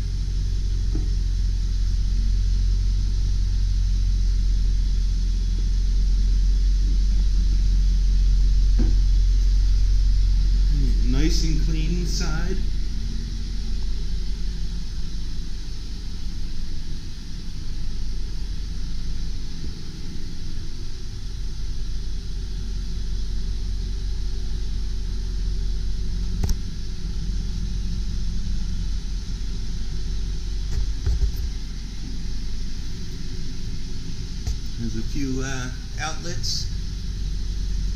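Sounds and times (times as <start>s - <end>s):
diesel engine idling: 0.0s - 37.9s
sharp click: 26.4s - 26.6s.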